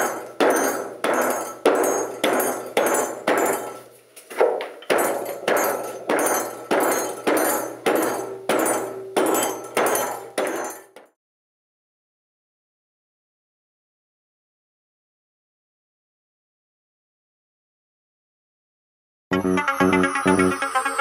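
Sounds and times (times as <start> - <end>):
rolling pin pounding on wooden table: 0.0 - 11.1.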